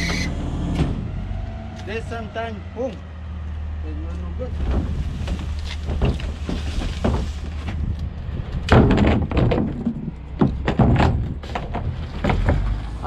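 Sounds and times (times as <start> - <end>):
plastic cart banging against truck: 4.6 - 7.8, 8.6 - 12.8.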